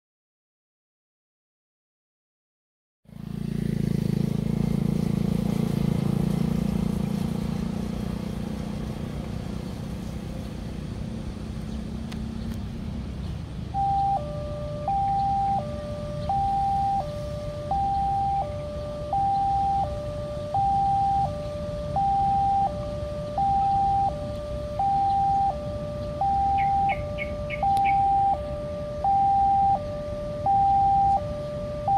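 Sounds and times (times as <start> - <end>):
vehicle engine running low: 3.1 - 31.9
two-tone crossing alarm: 13.6 - 31.9.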